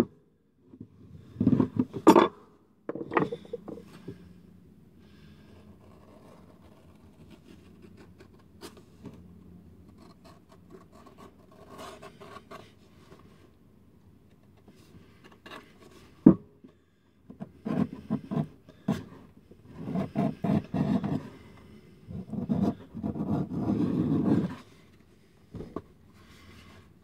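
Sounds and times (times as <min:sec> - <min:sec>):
knife scraping leather: 0:19.7 - 0:21.3, 0:22.1 - 0:24.6.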